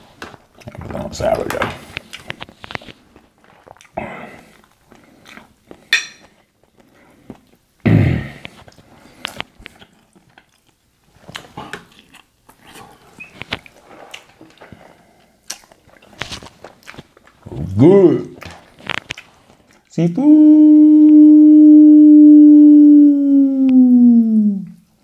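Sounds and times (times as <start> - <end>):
wet chewing: 0.6 - 7.6, 8.4 - 19.9
lip smacks: 15.4 - 19.9.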